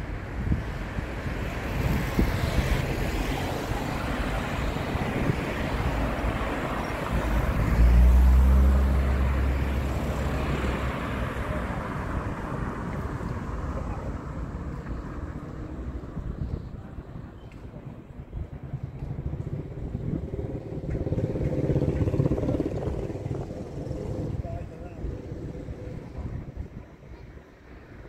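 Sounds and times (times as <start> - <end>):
wind buffeting microphone: 0.0 - 13.7, 14.3 - 28.0
vehicle engines running: 18.6 - 27.1.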